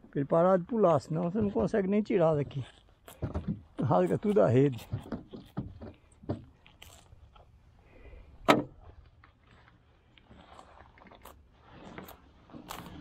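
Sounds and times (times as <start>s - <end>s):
knocks and clicks in boat: 4.8s - 6.6s.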